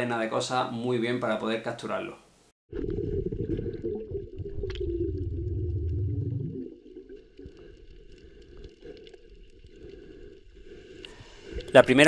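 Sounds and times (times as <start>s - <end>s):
underwater rumble of moving water: 2.7s - 11.6s
faint clicks and ticks: 7.2s - 11.9s.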